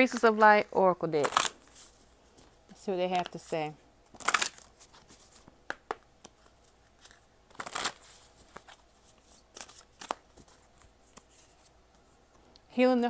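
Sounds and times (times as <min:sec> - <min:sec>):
cards being shuffled: 0:04.1 - 0:11.7.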